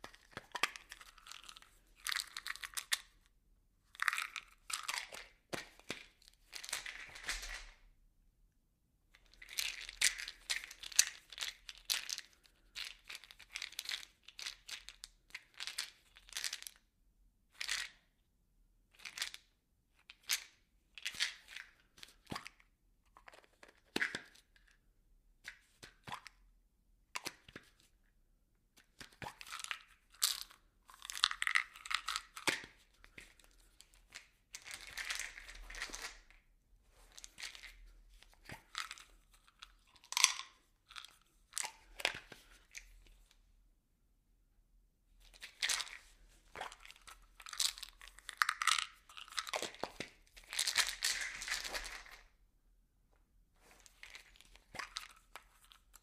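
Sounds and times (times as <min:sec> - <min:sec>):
objects rattling in plastic bottle: 0:04.0 - 0:07.8, 0:29.4 - 0:36.4, 0:45.3 - 0:52.3.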